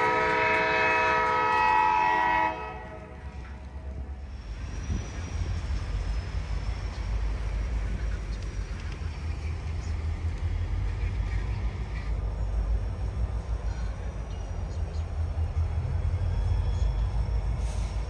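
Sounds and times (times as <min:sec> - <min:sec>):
freight train rumbling past: 0:00.0 - 0:18.0
faint high squeal: 0:04.3 - 0:07.6.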